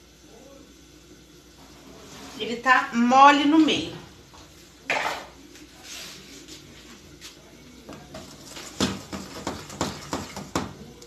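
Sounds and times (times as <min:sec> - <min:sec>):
spatula stirring thick frosting: 0:07.9 - 0:10.8
spatula knocking against pan: 0:08.8 - 0:10.8.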